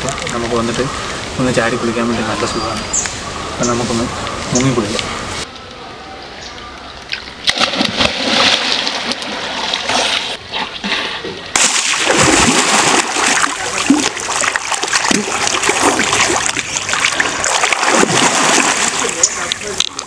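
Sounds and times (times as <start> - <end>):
water splashing in a pool: 6.8 - 20.0.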